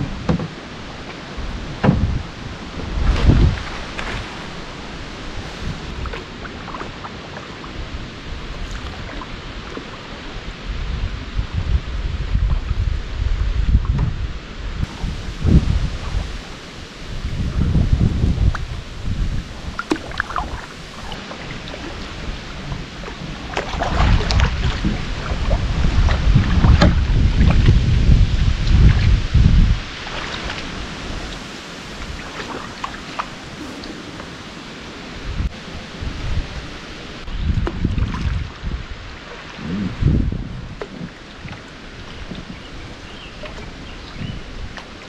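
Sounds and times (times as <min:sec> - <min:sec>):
wind buffeting microphone: 0:00.0 - 0:45.0
paddle water splashes and drips: 0:00.1 - 0:10.7, 0:14.8 - 0:39.6, 0:40.6 - 0:45.0
steady hiss: 0:14.8 - 0:21.2, 0:29.8 - 0:37.3.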